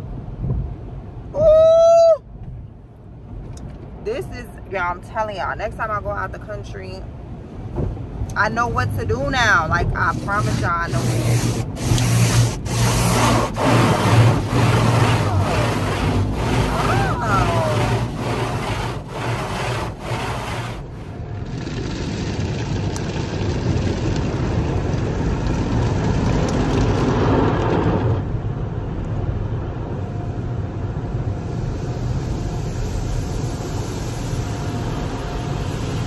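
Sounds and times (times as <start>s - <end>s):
rush of car wash noise: 0.0s - 36.0s
car wash brushes sweeping: 8.4s - 28.2s, 30.6s - 36.0s.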